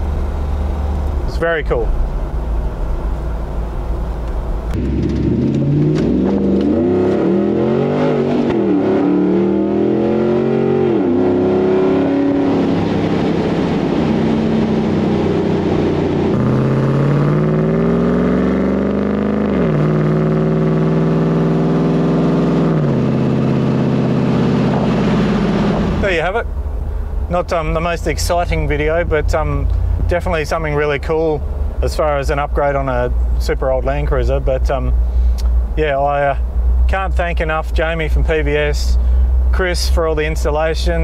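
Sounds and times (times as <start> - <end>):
car engine accelerating through gears: 4.2 - 26.1.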